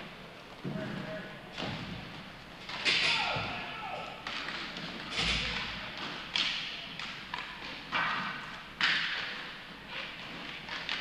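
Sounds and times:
sharp hits of sticks and puck: 2.7s - 11.0s.

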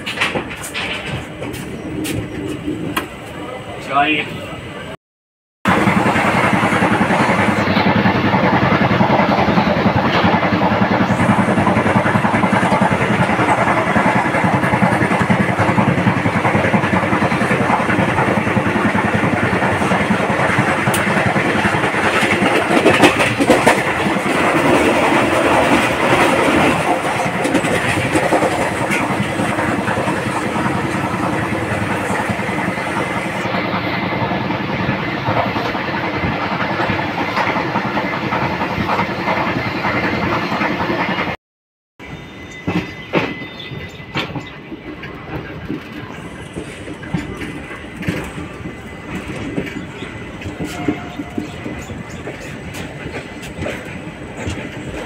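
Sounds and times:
train coach rattling: 0.0s - 4.9s, 5.7s - 41.4s, 42.0s - 55.0s
train wheels on rails: 0.0s - 4.9s, 5.7s - 41.4s, 42.0s - 55.0s.

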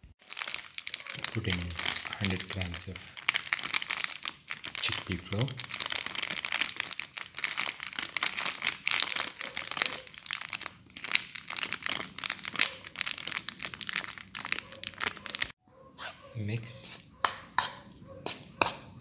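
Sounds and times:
crinkling handling noise: 0.2s - 16.3s.

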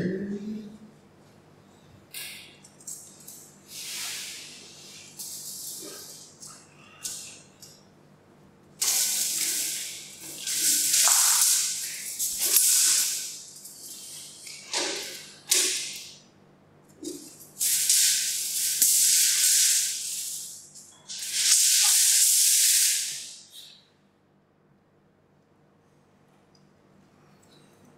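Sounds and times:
long hissing: 3.6s - 6.2s, 8.8s - 14.4s, 17.6s - 23.5s.

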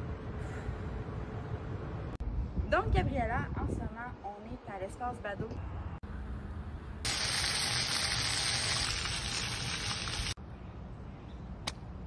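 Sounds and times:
low outdoor rumble: 0.0s - 12.0s
fountain water splashing: 7.1s - 10.4s.

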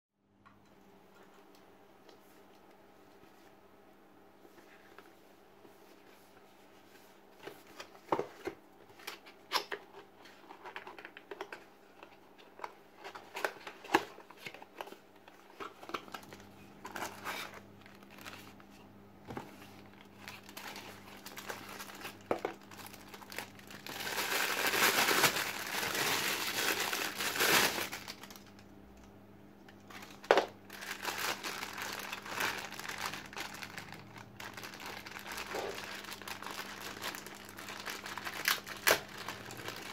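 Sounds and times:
faint steady hum: 0.2s - 39.9s
plastic bags crinkling: 15.6s - 18.6s, 19.6s - 28.6s, 29.8s - 39.9s.

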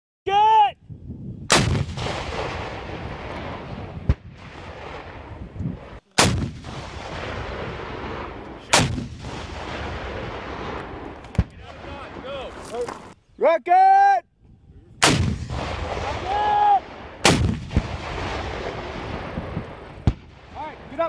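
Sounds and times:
sharp crack: 1.5s - 3.5s, 6.2s - 7.4s, 8.0s - 13.1s, 15.0s - 19.0s
rocket launcher blasts with echo: 1.5s - 11.5s, 15.0s - 20.6s.

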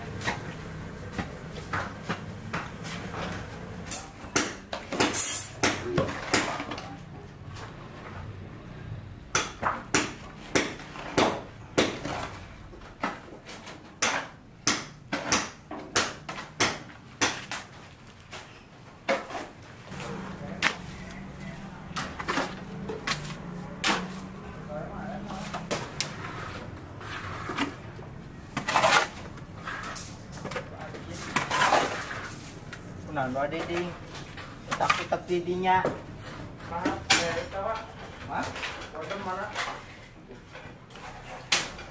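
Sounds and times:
shovels scraping mortar on concrete: 21.9s - 24.6s, 25.2s - 32.6s.

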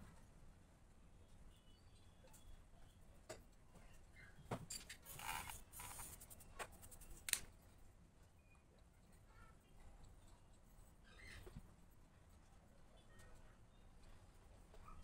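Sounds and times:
eraser rubbing on paper: 5.1s - 7.1s.

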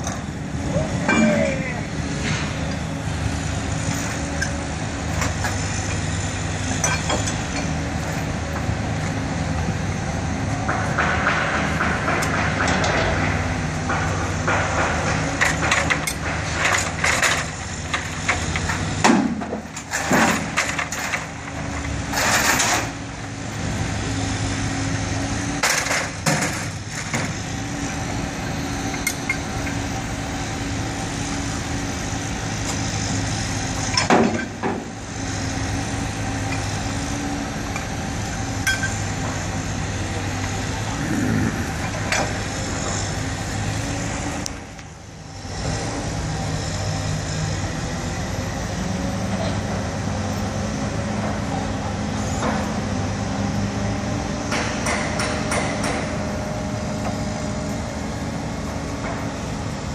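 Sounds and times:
metal clanks and knocks: 10.6s - 22.9s, 25.6s - 27.4s, 33.9s - 34.9s, 54.5s - 56.2s.

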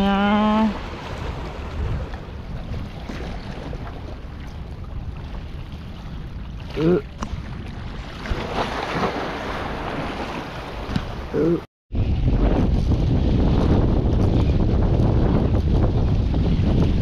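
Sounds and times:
wind buffeting microphone: 0.0s - 17.0s
sea lapping against rocks: 0.5s - 11.6s.

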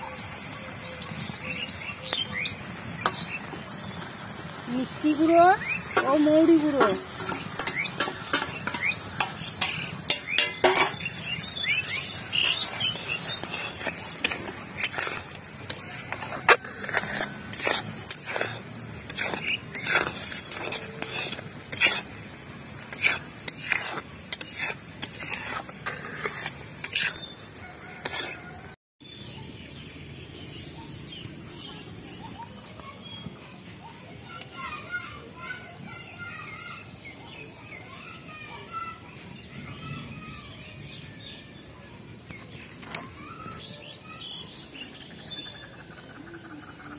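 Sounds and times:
syrup bubbling: 0.4s - 28.7s
metal spatula knocking a wok: 5.9s - 11.2s.

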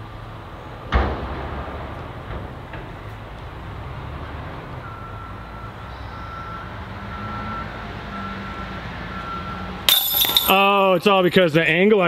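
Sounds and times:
vehicle engine rumbling: 0.0s - 10.8s
reversing alarm beeping: 4.8s - 9.8s.

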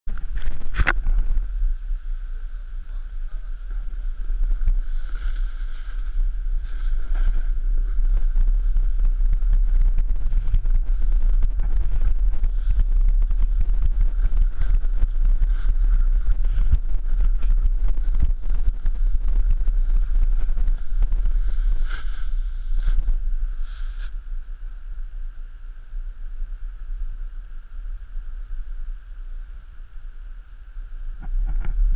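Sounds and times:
wind buffeting microphone: 0.1s - 31.9s
snowboard scraping through snow: 4.2s - 24.2s.

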